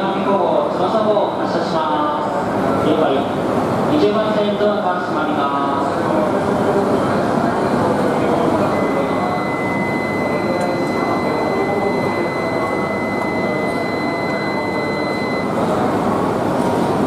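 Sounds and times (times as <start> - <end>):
platform noise hum: 0.0 - 17.0
steady high warning tone: 8.2 - 16.5.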